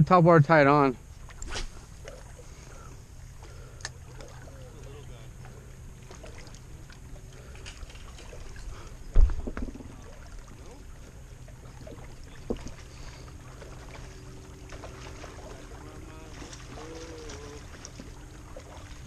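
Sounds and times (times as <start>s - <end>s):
motorboat engine humming: 0.6s - 19.0s
loud thump: 9.1s - 9.8s.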